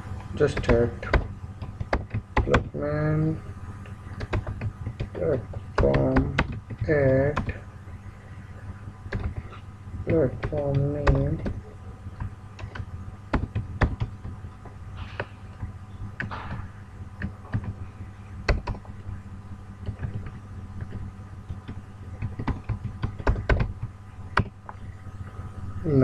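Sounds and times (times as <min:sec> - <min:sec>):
steady low hum: 0:00.0 - 0:26.0
keyboard keys typing: 0:00.4 - 0:03.2, 0:04.1 - 0:07.6, 0:09.1 - 0:14.7, 0:17.2 - 0:17.8, 0:18.4 - 0:19.2, 0:19.8 - 0:24.8.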